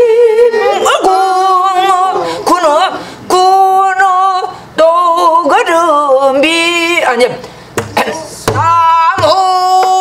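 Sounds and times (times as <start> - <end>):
woman singing folk song: 0.0 - 7.4, 8.6 - 10.0.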